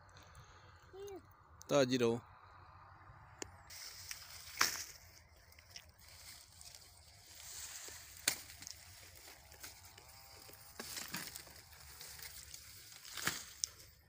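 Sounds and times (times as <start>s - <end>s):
dry cane leaves rustling: 3.7s - 14.0s
sugarcane stalks cracking: 3.7s - 14.0s.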